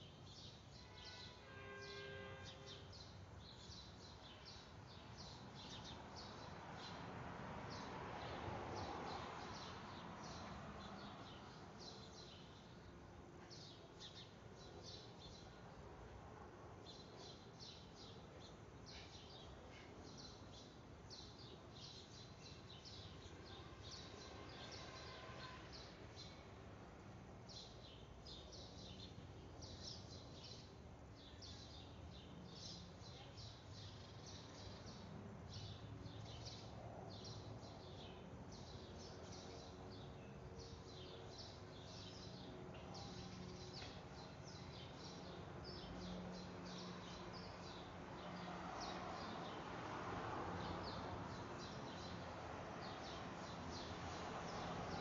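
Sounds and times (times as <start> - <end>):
small birds chirping: 8.8 - 15.8, 16.8 - 26.4, 27.5 - 49.6, 50.6 - 55.0.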